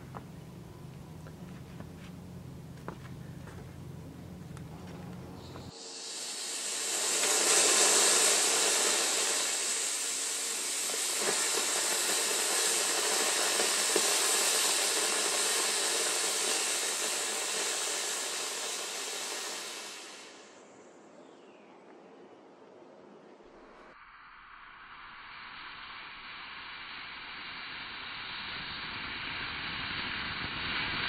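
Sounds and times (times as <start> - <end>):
rocket motor hissing: 1.7 - 20.8, 25.1 - 31.0
small pops: 10.7 - 19.5.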